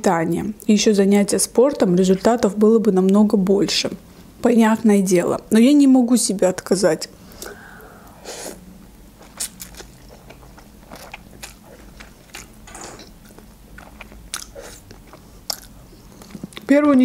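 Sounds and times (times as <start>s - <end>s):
chewing: 9.2s - 17.0s.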